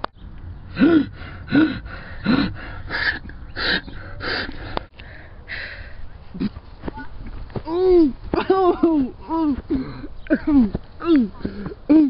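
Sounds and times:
person gasping for breath: 0:00.8 - 0:06.0, 0:11.1 - 0:11.9.

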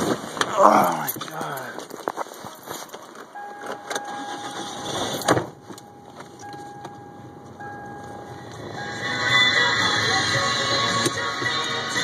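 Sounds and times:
car engine idling: 0:03.3 - 0:12.0
high electronic tone: 0:03.4 - 0:09.4
loud thump: 0:05.2 - 0:05.6.

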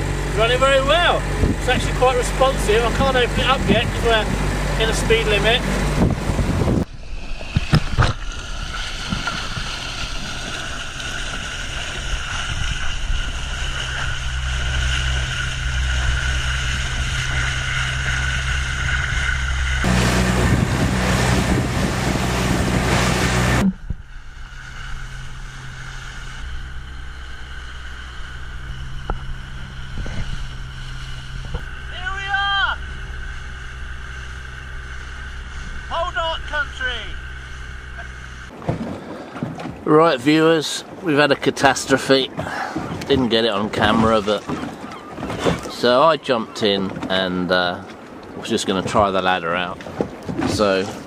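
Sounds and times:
water spray rushing: 0:00.0 - 0:38.6
outboard motor running: 0:00.0 - 0:51.0
wind on microphone: 0:01.2 - 0:35.9.

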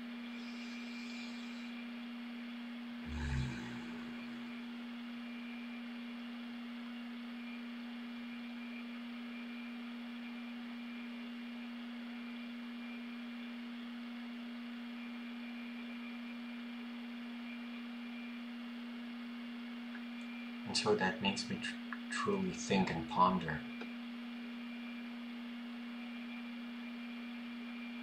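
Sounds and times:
steady low tone: 0:03.0 - 0:05.0.

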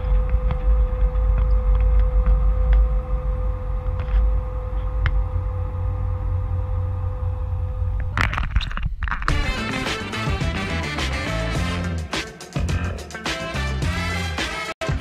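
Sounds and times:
music: 0:00.0 - 0:05.7, 0:09.3 - 0:15.0
boat engine droning: 0:00.0 - 0:08.1.

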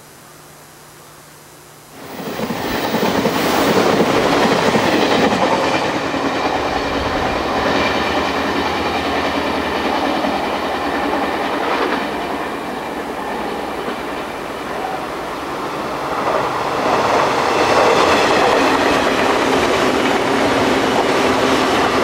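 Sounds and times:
train wheels clattering over rails: 0:02.0 - 0:14.9.

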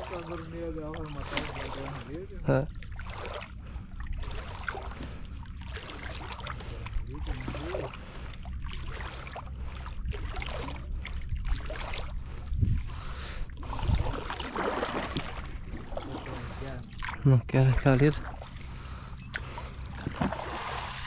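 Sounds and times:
steady low rumble: 0:00.0 - 0:14.4
water sloshing and dripping: 0:00.0 - 0:21.0.

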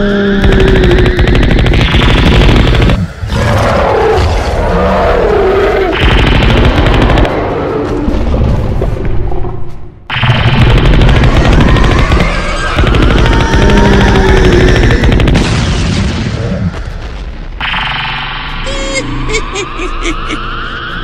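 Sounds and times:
machine gun firing: 0:00.4 - 0:03.0, 0:06.0 - 0:07.5, 0:10.1 - 0:16.1.

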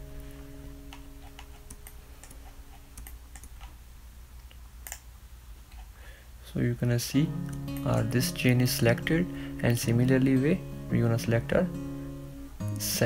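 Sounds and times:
computer mouse clicks: 0:00.9 - 0:03.8, 0:04.4 - 0:05.1
held guitar note: 0:07.2 - 0:13.0.

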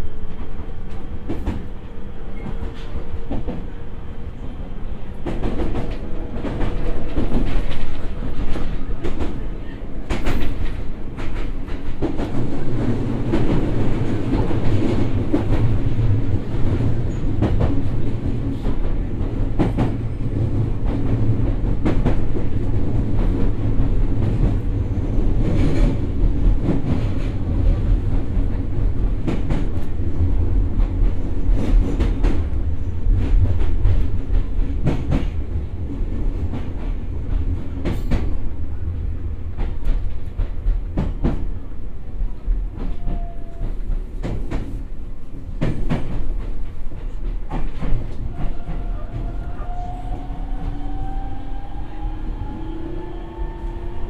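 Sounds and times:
train rumbling: 0:00.0 - 0:54.0.

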